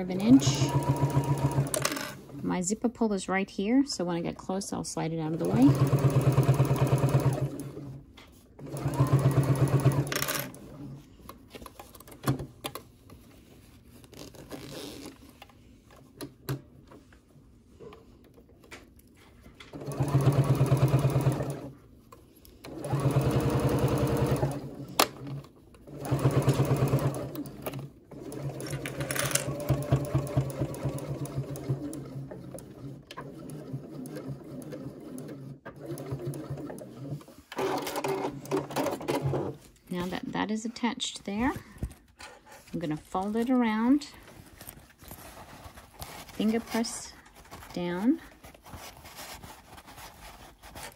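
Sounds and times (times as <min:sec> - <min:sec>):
sewing machine stitching: 0:00.0 - 0:02.2, 0:05.3 - 0:08.0, 0:08.6 - 0:10.8, 0:19.7 - 0:21.8, 0:22.6 - 0:39.5.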